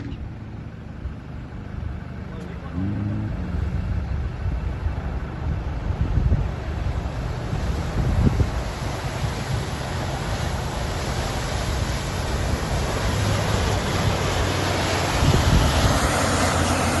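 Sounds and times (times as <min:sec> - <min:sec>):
truck engine drone: 0:00.0 - 0:17.0
wind on microphone: 0:03.2 - 0:17.0
water splashing: 0:04.6 - 0:17.0.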